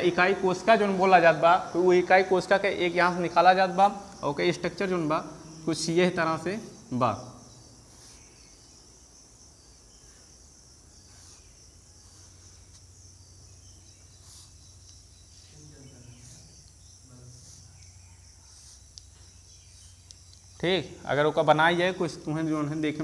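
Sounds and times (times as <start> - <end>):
insects chirring: 0.0 - 23.0
chalk scratching on blackboard: 7.8 - 8.6, 11.0 - 13.0, 13.8 - 16.7, 17.3 - 20.2.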